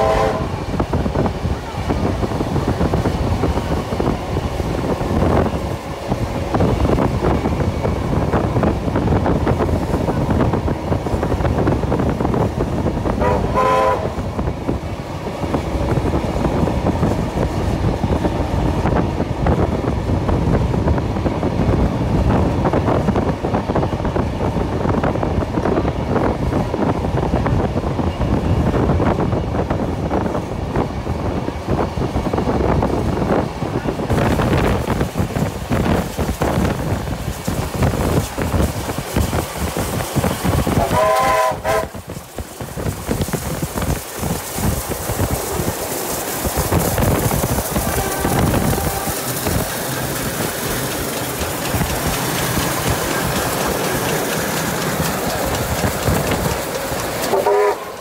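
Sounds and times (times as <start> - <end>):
steam whistle toot: 0.0 - 0.6, 13.2 - 14.2, 40.8 - 42.0, 47.9 - 49.2, 57.3 - 58.0
rolling wheels and wind noise: 0.0 - 58.0
steam locomotive exhaust beats: 0.0 - 58.0.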